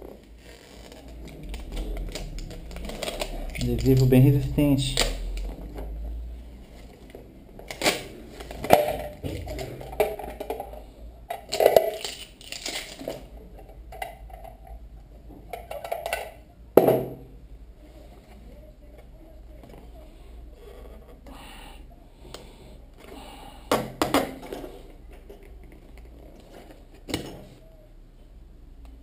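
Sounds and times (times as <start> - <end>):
plastic packaging clicks and crinkles: 0.2 - 5.8, 11.3 - 13.3.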